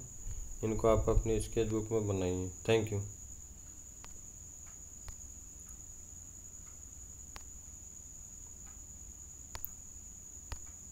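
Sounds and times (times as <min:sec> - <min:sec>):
faint clicks: 0:03.6 - 0:05.8, 0:06.6 - 0:07.6, 0:09.5 - 0:09.8, 0:10.5 - 0:10.9.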